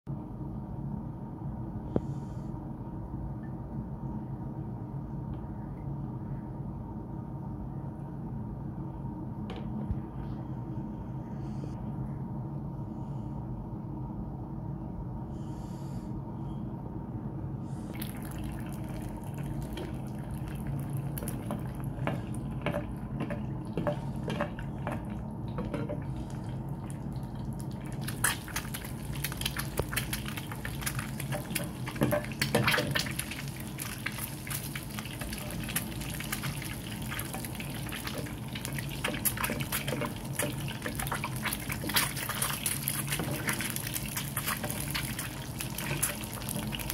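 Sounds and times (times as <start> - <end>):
steady low hum: 0.1 - 46.9
egg sizzling and popping in oil: 17.9 - 46.9.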